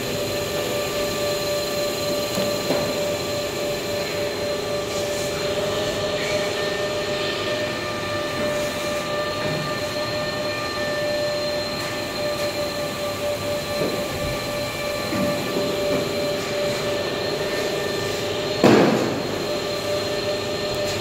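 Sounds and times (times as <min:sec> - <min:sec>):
cooling fan noise: 0:00.0 - 0:21.0
steady whine: 0:00.0 - 0:21.0.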